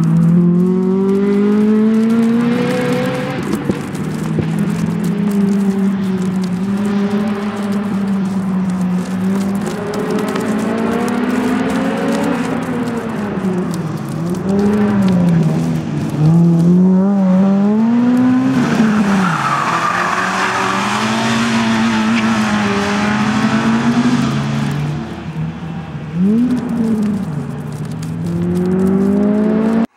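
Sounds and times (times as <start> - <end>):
race car engine revving: 0.2 - 29.9
tyres squealing: 17.8 - 29.1.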